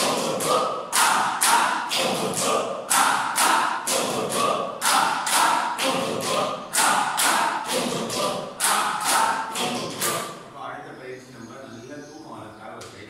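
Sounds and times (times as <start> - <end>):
group clapping in rhythm: 0.0 - 10.4
people chanting in unison: 0.0 - 10.5.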